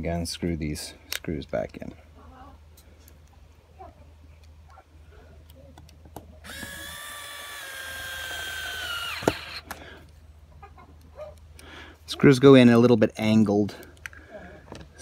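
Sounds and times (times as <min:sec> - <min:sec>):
electric screwdriver whining: 0:06.4 - 0:09.7.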